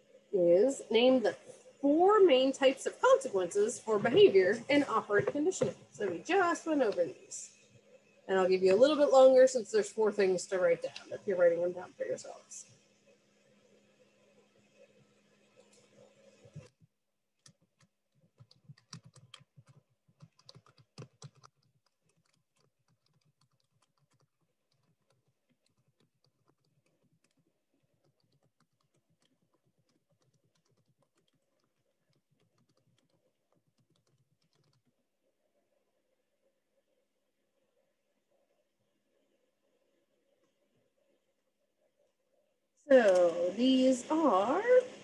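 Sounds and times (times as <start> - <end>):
computer keyboard typing: 17.4 - 35.0.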